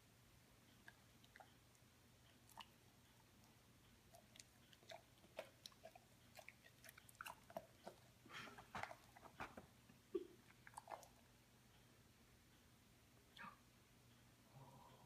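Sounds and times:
dog chewing with wet clicks: 0:00.6 - 0:11.9.

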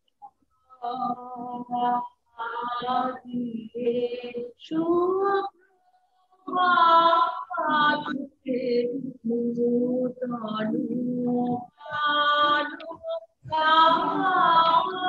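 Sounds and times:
woman singing unaccompanied: 0:00.7 - 0:05.6, 0:06.4 - 0:15.0.

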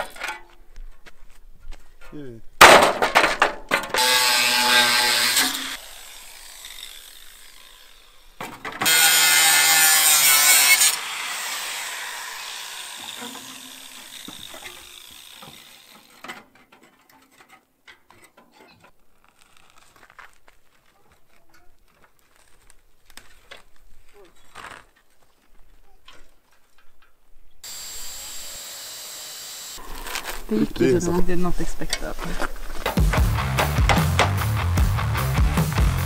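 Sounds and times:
angle grinder cutting sheet steel: 0:03.9 - 0:16.2, 0:27.6 - 0:30.4.

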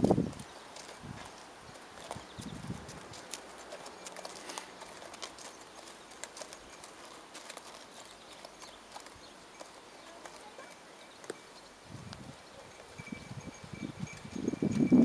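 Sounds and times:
horse hooves clip-clopping: 0:00.0 - 0:15.0.

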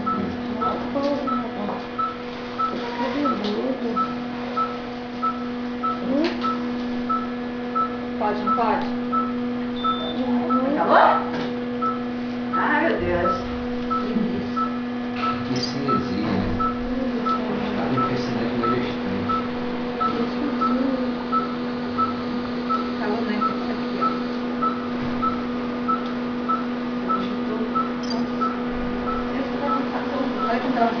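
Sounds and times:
low equipment hum: 0:00.0 - 0:31.0
patient monitor beeping: 0:00.0 - 0:31.0.

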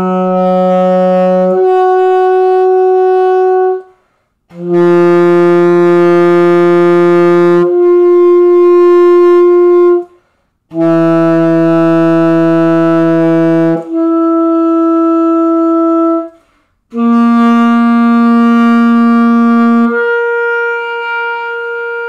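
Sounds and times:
saxophone long tones: 0:00.0 - 0:22.0
breath: 0:03.9 - 0:04.5, 0:10.1 - 0:10.7, 0:16.3 - 0:16.9.

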